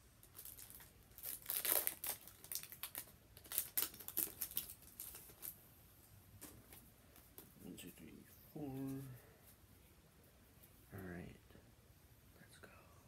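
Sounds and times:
foil wrapper crinkling and tearing: 0.2s - 5.6s.

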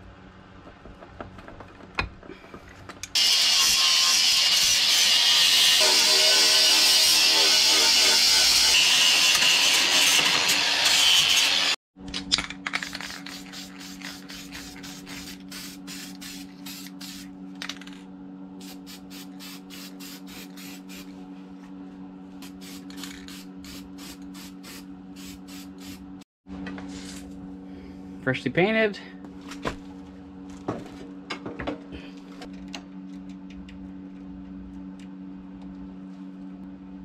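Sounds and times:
angle grinder on metal: 3.2s - 11.8s
aerosol spray can hissing: 13.0s - 17.3s, 18.6s - 21.1s, 22.4s - 26.0s
steady low hum: 13.1s - 37.0s.

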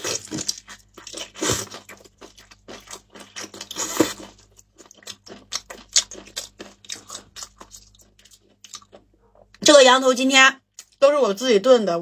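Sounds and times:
meat being bitten and chewed: 0.0s - 9.5s.

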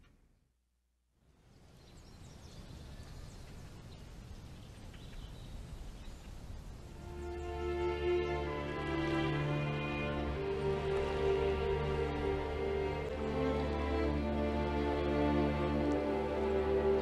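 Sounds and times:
steady background hiss: 1.2s - 17.0s
faint bird chirps: 1.4s - 8.0s
music with long held notes: 7.0s - 17.0s.

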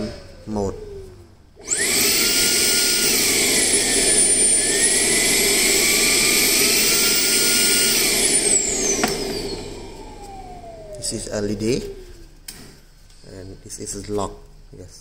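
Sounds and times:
handheld vacuum motor whine: 0.8s - 12.4s.

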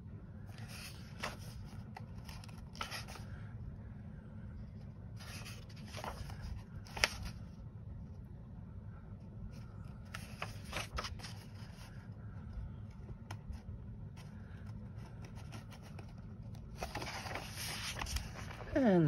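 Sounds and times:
steady low hum: 0.0s - 19.0s
paper pages rustling: 0.5s - 3.4s, 5.1s - 7.6s, 9.5s - 18.9s.

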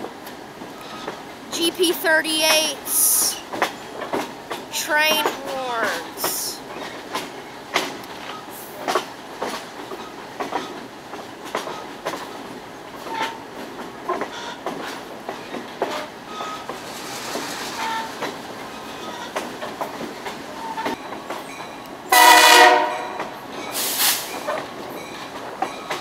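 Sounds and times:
train wheels clicking over rail joints: 0.0s - 22.2s, 23.1s - 26.0s
train running rumble: 0.0s - 26.0s.

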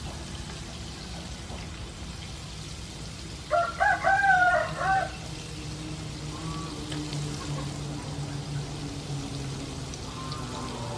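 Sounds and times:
food frying in oil: 0.0s - 10.9s
rooster crowing: 3.5s - 5.2s.

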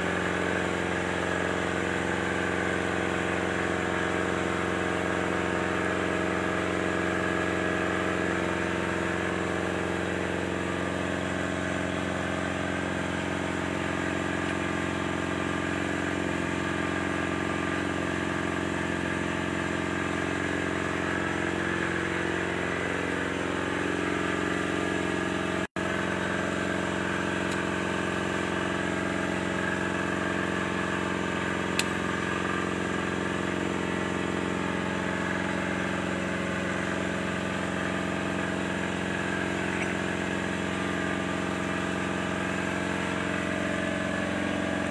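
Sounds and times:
excavator diesel engine running: 0.0s - 44.9s.

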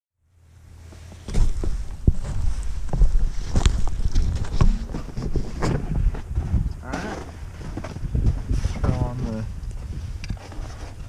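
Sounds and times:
low microphone rumble: 0.4s - 11.0s
camera handling knocks and rubbing: 3.0s - 6.4s.

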